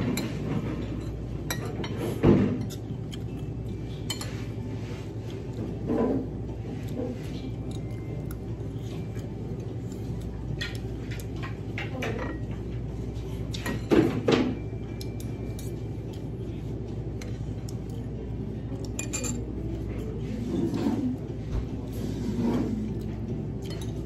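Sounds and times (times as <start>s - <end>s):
cutlery clinking on a plate: 0.0s - 4.5s, 18.8s - 19.6s
low background hum: 0.0s - 24.0s.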